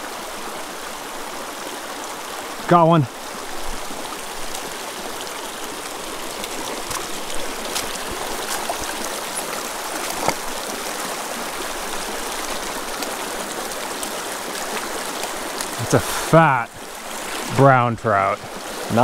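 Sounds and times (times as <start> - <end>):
creek running over rocks: 0.0 - 19.0.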